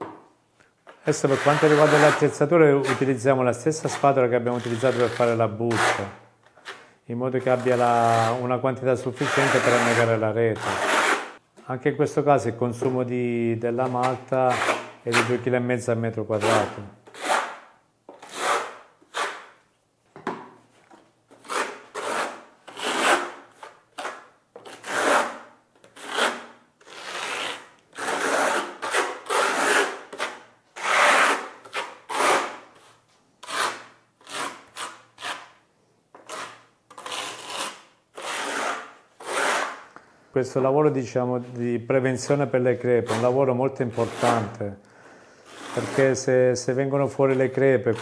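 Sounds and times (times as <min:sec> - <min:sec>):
trowel scraping wet mortar: 0:01.2 - 0:03.1, 0:03.9 - 0:06.1, 0:09.1 - 0:11.4, 0:24.1 - 0:32.6, 0:33.4 - 0:35.5, 0:36.2 - 0:39.8, 0:43.0 - 0:44.5, 0:45.5 - 0:46.2.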